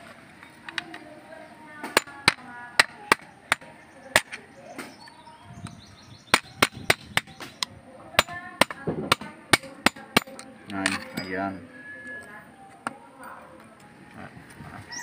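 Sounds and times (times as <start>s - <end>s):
metal parts knocking together: 9.8s - 11.4s.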